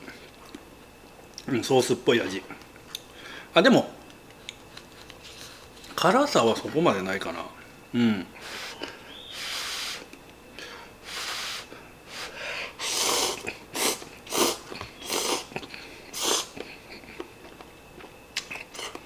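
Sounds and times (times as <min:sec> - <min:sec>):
man slurping noodles: 0:12.8 - 0:16.6.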